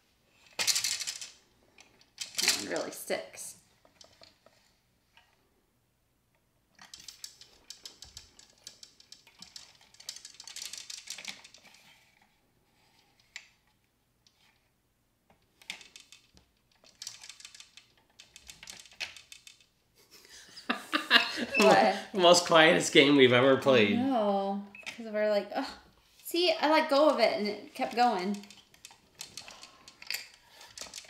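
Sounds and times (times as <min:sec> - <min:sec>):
plastic gears clicking: 0:00.4 - 0:03.0, 0:06.8 - 0:11.9, 0:15.5 - 0:19.7, 0:27.8 - 0:31.0.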